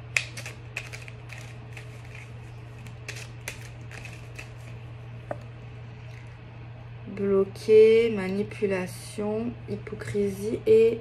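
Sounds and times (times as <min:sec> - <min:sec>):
steady low hum: 0:00.0 - 0:11.0
cards being shuffled: 0:00.1 - 0:04.8.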